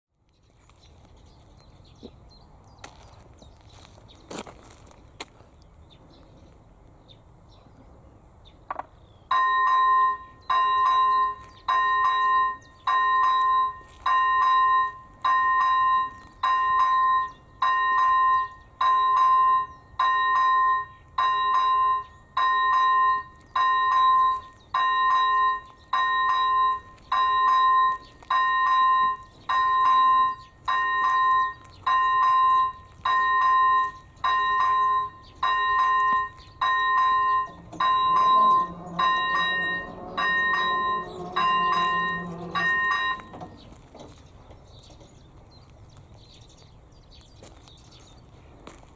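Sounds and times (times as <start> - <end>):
level crossing bell ringing: 9.3 - 43.6
low hum: 33.9 - 44.3.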